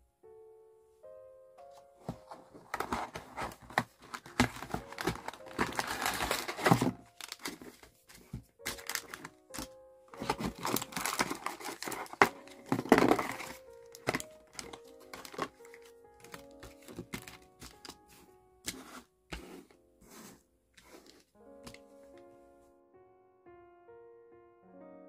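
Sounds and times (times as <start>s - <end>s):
soft background music: 0.0s - 25.0s
packaging crinkling and rustling: 2.0s - 19.6s.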